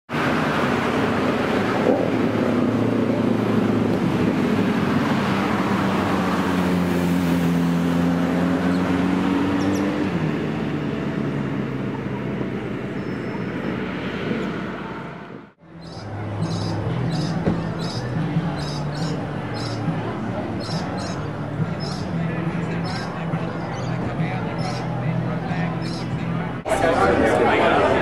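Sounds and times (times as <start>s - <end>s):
road traffic noise: 0.1s - 28.0s
vehicle engine running: 15.4s - 26.6s.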